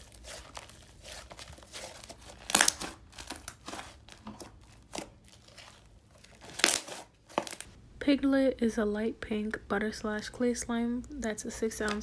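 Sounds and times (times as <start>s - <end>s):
slime crackling and popping: 0.0s - 7.7s.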